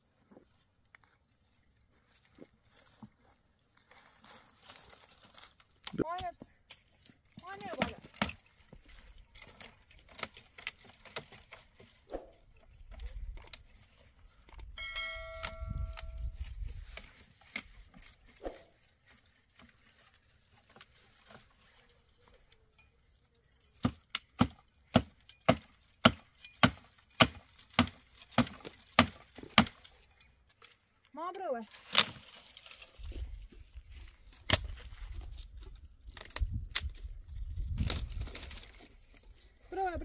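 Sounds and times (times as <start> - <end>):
brief ringing tone: 14.8 - 16.3
hand tool striking wood: 23.8 - 30.1.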